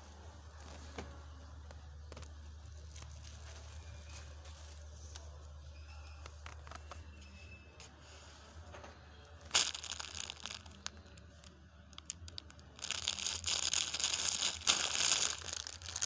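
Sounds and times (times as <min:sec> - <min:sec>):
plastic rustling and crinkling: 0:00.0 - 0:07.2, 0:09.4 - 0:16.0
scattered crackles: 0:00.4 - 0:07.2, 0:09.4 - 0:16.0.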